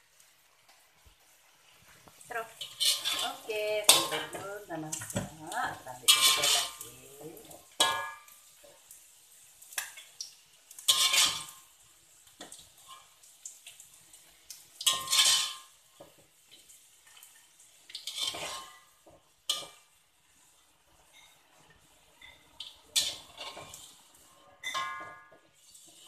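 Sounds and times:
metal spatula scraping a wok: 2.4 - 8.3, 10.8 - 11.8, 14.8 - 16.2, 17.8 - 26.0.

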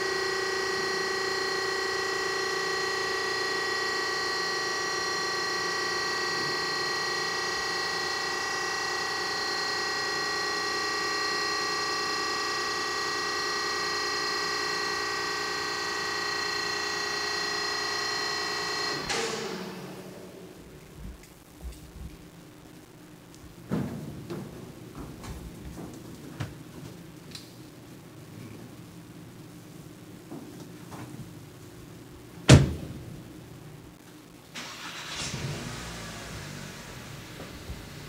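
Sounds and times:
hydraulic drive whining hum: 0.0 - 21.0
platform stopping clunk: 19.0 - 20.2.

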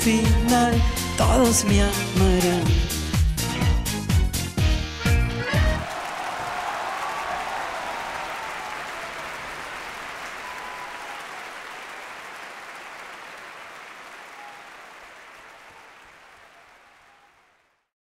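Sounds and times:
audience applause: 5.5 - 17.9.

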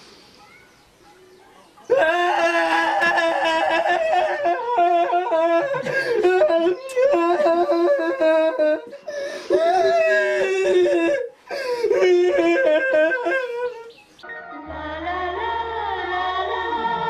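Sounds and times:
man wailing in a high voice: 1.9 - 13.9.

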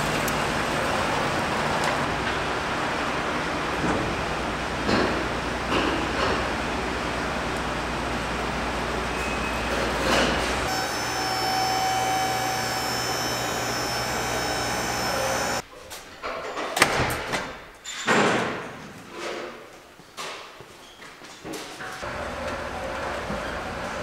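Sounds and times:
machine hum with whining tones: 7.8 - 15.6.

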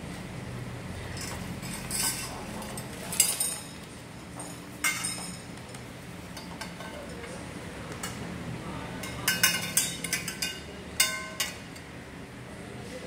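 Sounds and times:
metal tubes clinking: 1.1 - 5.5, 9.0 - 11.9.

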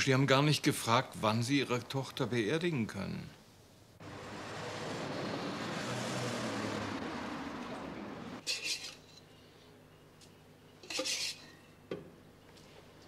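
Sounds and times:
car driving in: 4.0 - 8.4.

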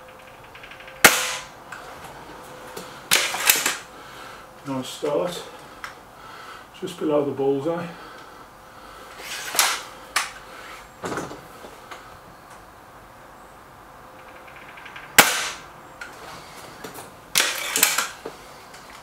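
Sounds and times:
air rifle shot: 1.0 - 1.6, 15.2 - 15.7.

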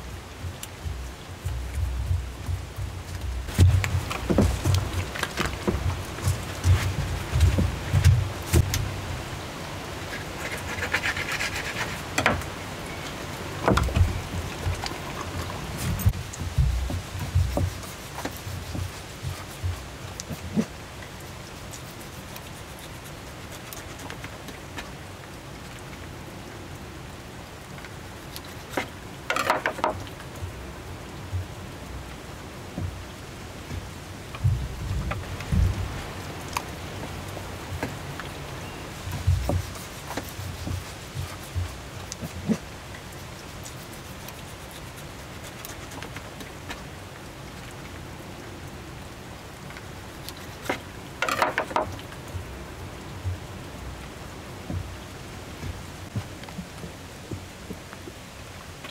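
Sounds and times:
water drips: 0.0 - 58.2
steady rain falling: 0.0 - 58.9
noisy knocks: 0.4 - 9.0, 13.6 - 15.2, 15.8 - 19.8, 28.8 - 30.1, 33.7 - 36.1
clatter of knocks and rustling: 0.9 - 8.9, 28.7 - 30.2, 50.6 - 52.1.

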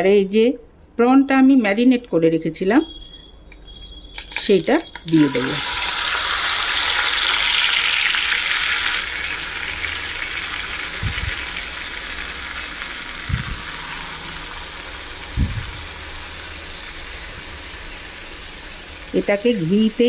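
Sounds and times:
prawns sizzling in a pan: 5.0 - 20.0.

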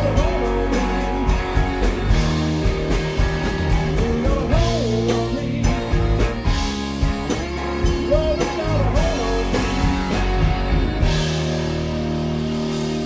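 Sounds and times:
person singing: 0.0 - 2.4, 3.6 - 6.7, 7.4 - 10.4
live rock band playing: 0.0 - 13.0.

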